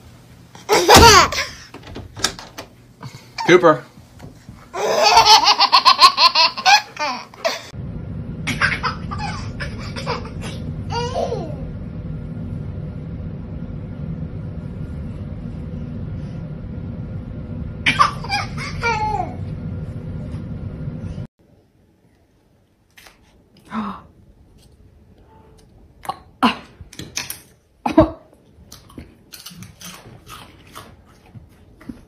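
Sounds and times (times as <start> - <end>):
baby laughing: 0.7 - 1.6, 4.7 - 7.7, 8.5 - 11.5, 17.9 - 19.4
steady low rumble: 7.6 - 21.3.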